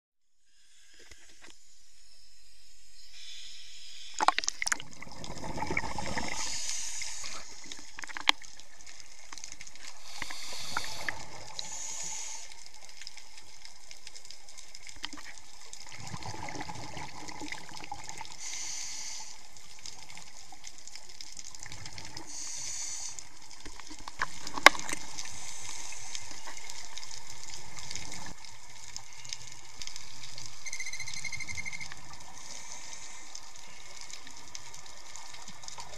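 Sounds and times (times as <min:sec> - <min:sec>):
steady water hiss: 0:00.4 - 0:35.9
regulator hissing inhalations: 0:06.3 - 0:07.7, 0:10.0 - 0:12.7, 0:18.4 - 0:19.5, 0:22.2 - 0:23.4.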